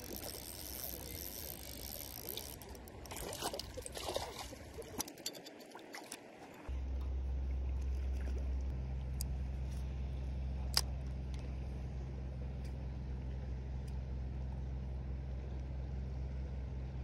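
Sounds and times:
low machine hum: 0.0 - 5.5, 6.5 - 17.0.

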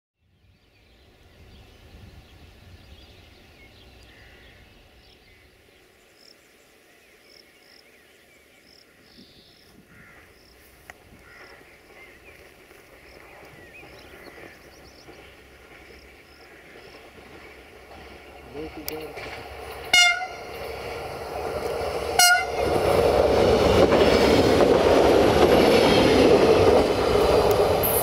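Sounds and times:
birds chirping: 0.3 - 28.0.

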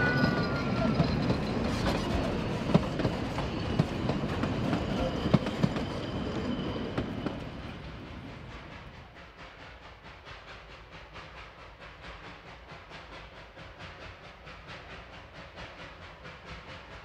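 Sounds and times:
railway carriages rumbling past: 0.0 - 17.0.

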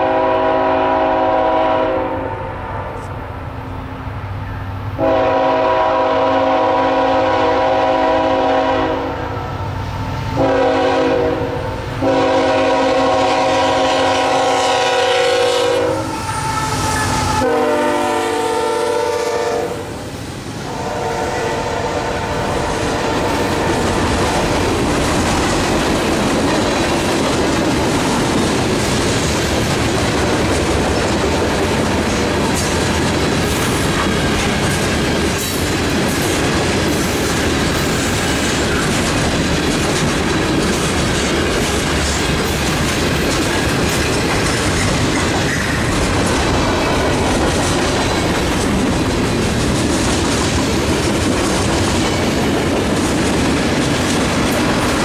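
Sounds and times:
train horn blasts: 0.0 - 3.2, 5.0 - 19.9, 20.6 - 23.9
train wheels rumbling on rails: 0.0 - 55.0.

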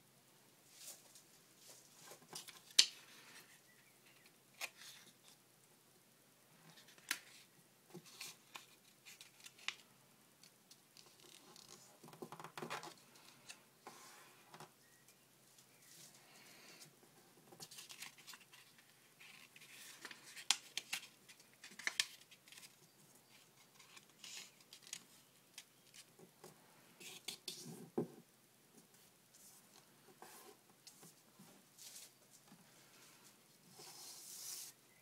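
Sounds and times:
paper rustling and crinkling: 17.6 - 26.1.

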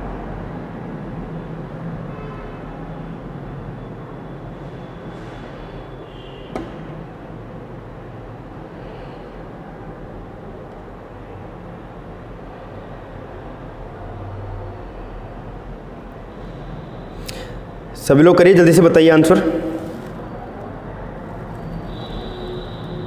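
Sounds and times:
low hum: 19.3 - 20.5.

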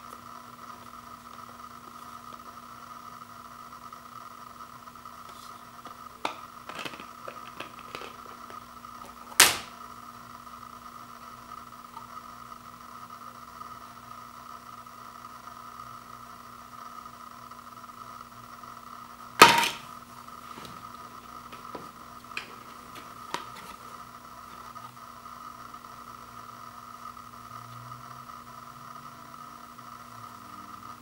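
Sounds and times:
sharp plastic snap: 9.4 - 9.7.

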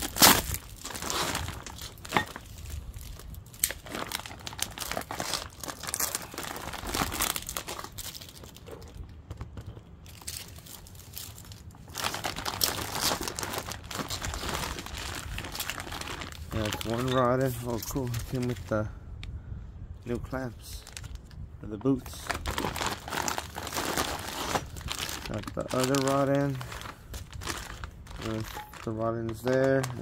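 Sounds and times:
plastic bags crinkling and tearing: 0.0 - 18.9, 20.5 - 30.0.

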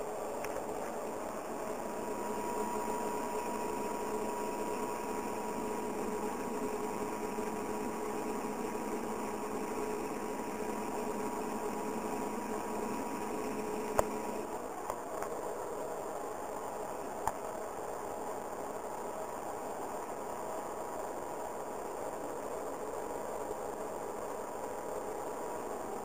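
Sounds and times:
diesel engine humming with whine: 0.0 - 14.9.

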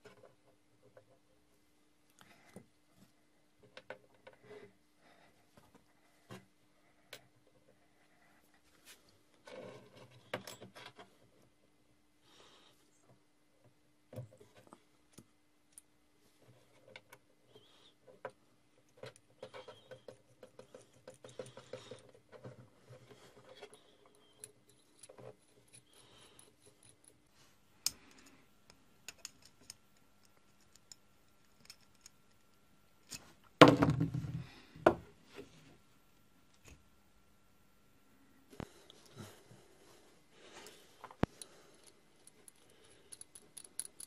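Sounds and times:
small metal clicks and scrapes: 18.9 - 33.2, 41.2 - 44.0.

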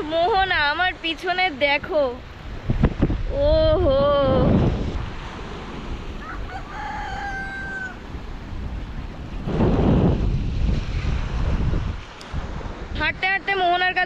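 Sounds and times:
wind buffeting microphone: 0.0 - 14.0
rooster crowing: 6.2 - 8.2.

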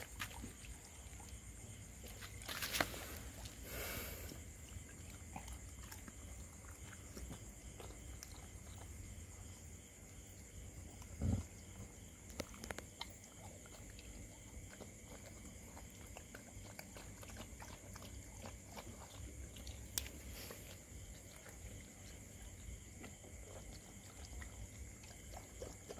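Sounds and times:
dogs chewing food: 0.0 - 25.9.

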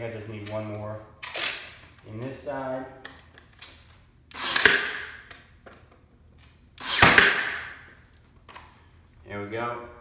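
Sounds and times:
nail gun firing into wood: 4.3 - 5.3, 6.8 - 7.9.

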